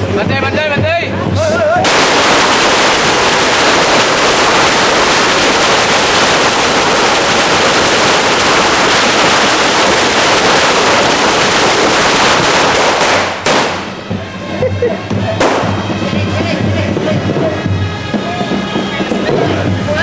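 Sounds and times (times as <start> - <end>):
music: 0.0 - 2.0, 13.2 - 20.0
firecrackers crackling bangs: 1.8 - 14.2, 15.3 - 17.7, 18.4 - 19.9.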